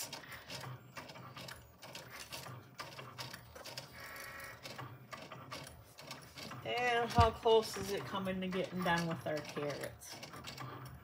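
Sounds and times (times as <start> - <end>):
cutting machine motors whirring: 0.0 - 11.0.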